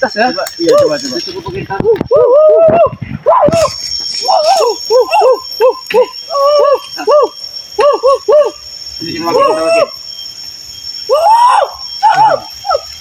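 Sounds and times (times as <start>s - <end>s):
high insect drone: 0.0s - 13.0s
person hooting: 1.8s - 10.0s, 11.1s - 13.0s.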